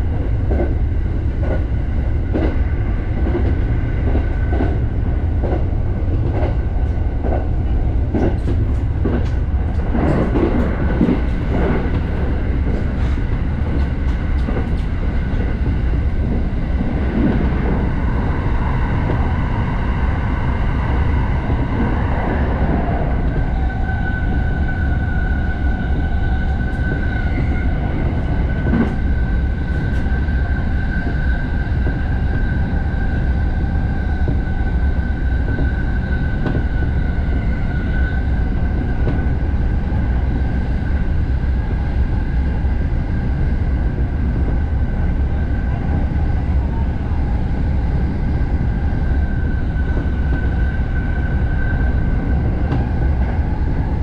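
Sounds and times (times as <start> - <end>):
train low rumble: 0.0 - 54.0.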